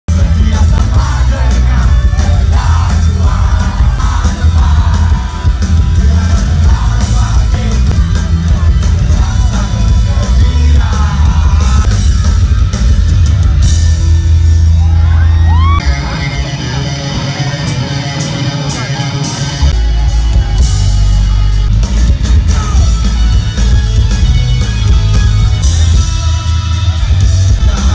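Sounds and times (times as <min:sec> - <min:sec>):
person singing: 0:00.1 - 0:12.2, 0:25.8 - 0:27.9
deep booming bass: 0:00.1 - 0:15.8, 0:19.7 - 0:27.9
live rock band playing: 0:00.1 - 0:27.9.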